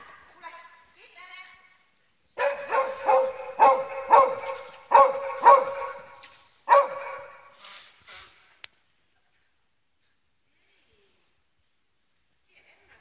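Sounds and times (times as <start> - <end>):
dog barking: 2.4 - 7.5.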